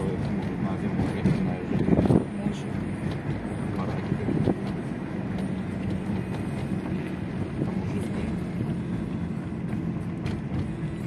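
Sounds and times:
car driving interior noise: 0.0 - 11.0.

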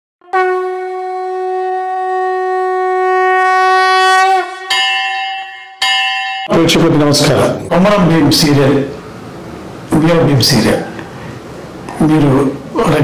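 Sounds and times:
conch shell blown: 0.2 - 6.1.

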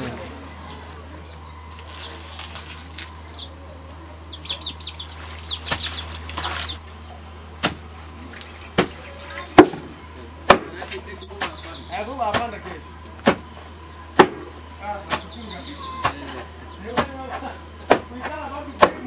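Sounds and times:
chicken calls: 0.0 - 7.3, 8.1 - 10.4, 15.2 - 16.9.

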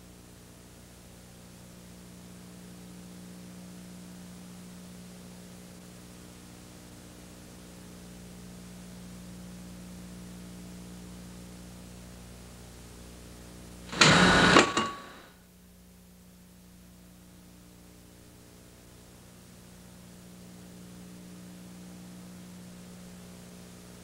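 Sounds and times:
recording hum and hiss: 0.0 - 24.0
loud noise bursts: 13.9 - 15.3.

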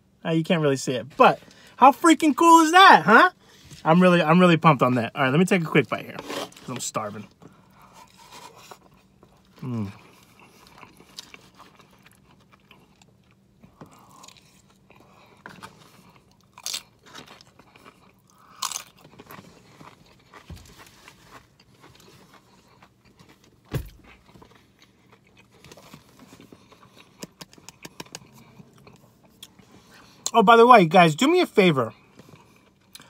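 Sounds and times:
person chewing and crunching food: 5.6 - 30.4, 31.9 - 33.0.

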